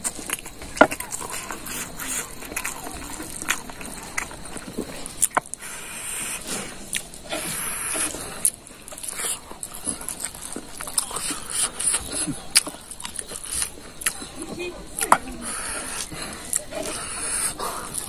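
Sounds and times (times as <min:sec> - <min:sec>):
man chewing and lip smacking: 0:00.0 - 0:18.0.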